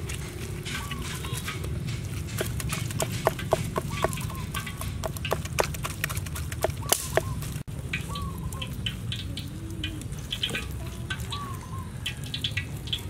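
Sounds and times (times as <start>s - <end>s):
hens clucking: 0.7s - 5.6s
knife chopping on wooden board: 2.3s - 7.3s.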